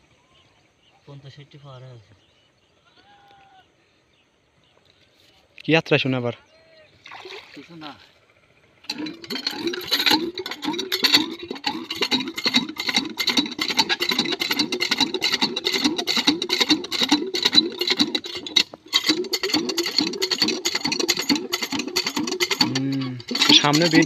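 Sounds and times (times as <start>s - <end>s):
water glugging from jerrycan: 7.0s - 8.0s, 8.9s - 24.0s.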